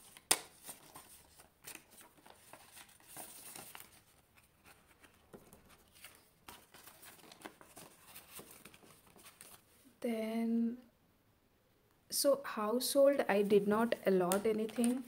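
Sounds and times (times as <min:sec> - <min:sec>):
paper and plastic rustling: 0:00.0 - 0:09.8, 0:14.2 - 0:15.0.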